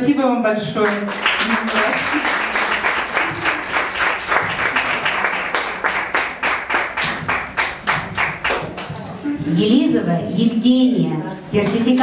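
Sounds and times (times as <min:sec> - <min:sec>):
audience applauding: 0:00.8 - 0:08.9.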